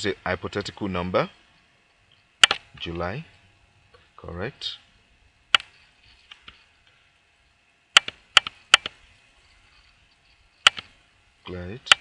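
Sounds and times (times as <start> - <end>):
computer mouse clicking: 8.0 - 9.0, 10.6 - 10.9.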